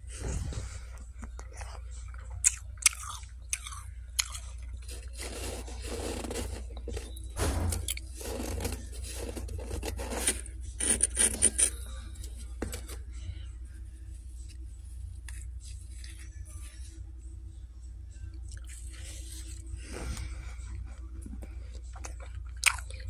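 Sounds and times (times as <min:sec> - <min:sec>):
low steady hum: 0:00.0 - 0:23.0
frost crunching and scraping: 0:02.5 - 0:13.2.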